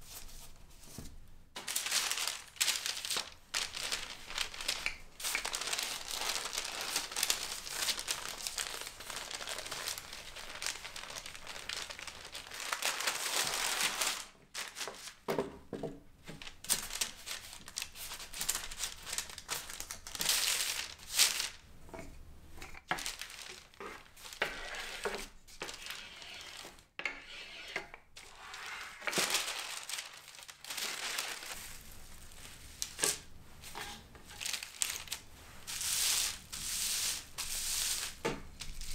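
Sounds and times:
hand rubbing bubble wrap: 0:01.6 - 0:15.2, 0:23.0 - 0:26.8, 0:28.3 - 0:33.0, 0:34.2 - 0:38.9
baking paper crinkling: 0:01.6 - 0:15.3, 0:16.2 - 0:21.7, 0:22.6 - 0:26.9, 0:28.2 - 0:38.9
rolling pin rolling dough: 0:23.8 - 0:29.1.

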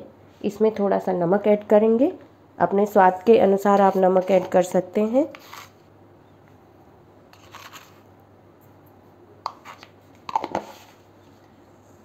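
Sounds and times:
container clicking and knocking: 0:10.3 - 0:10.7.

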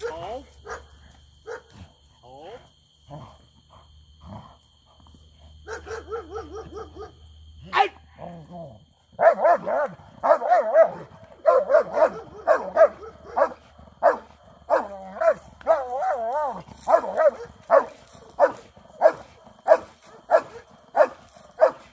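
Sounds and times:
dog barking and whining: 0:05.7 - 0:08.0, 0:09.2 - 0:21.9.

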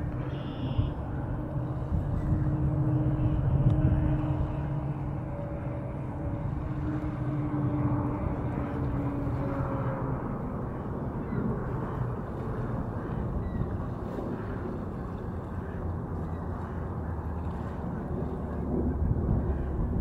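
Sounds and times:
distant engine rumble: 0:00.0 - 0:20.0
faint steady drone: 0:00.0 - 0:20.0.

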